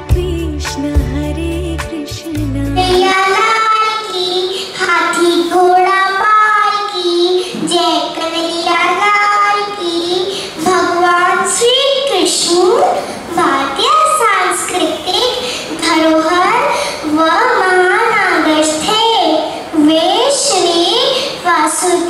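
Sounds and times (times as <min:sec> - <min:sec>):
recorded music with deep bass: 0:00.0 - 0:03.0
girl singing into a microphone: 0:00.0 - 0:22.0.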